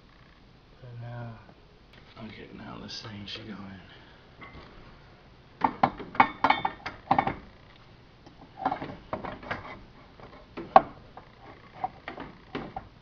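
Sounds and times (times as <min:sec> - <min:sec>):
metal parts knocking and clanking: 0:08.6 - 0:11.0.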